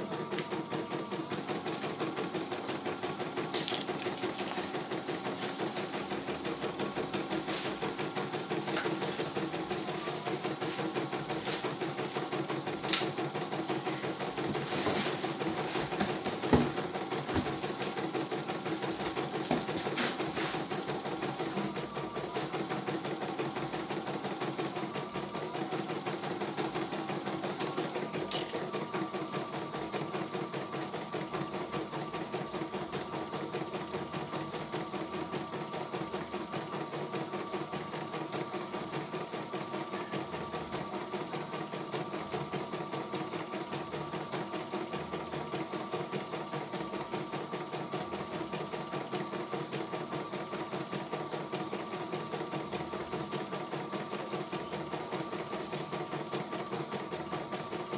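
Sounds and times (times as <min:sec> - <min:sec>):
embroidery machine stitching: 0:00.0 - 0:57.9.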